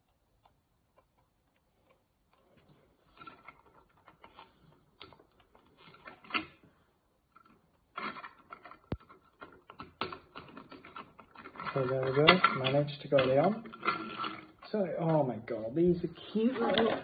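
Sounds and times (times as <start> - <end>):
plastic parts clicking and tapping: 7.3 - 15.3.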